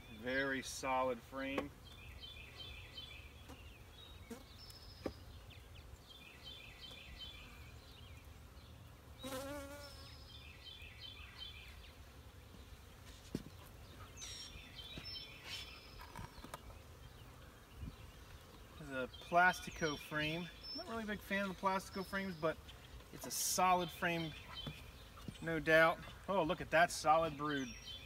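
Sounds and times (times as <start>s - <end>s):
honey bees buzzing: 0.0s - 28.0s
bee flying past: 9.2s - 10.2s.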